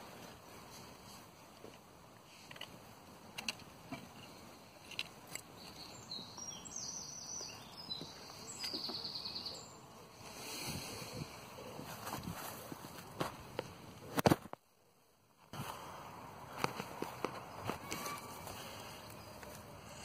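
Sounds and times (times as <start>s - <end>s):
faint clicks and rustles: 0.0s - 5.9s, 11.3s - 14.7s, 16.5s - 20.0s.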